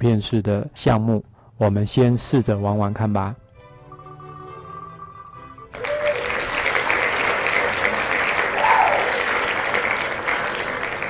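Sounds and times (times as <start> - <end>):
crowd applause and cheering: 5.0 - 11.0.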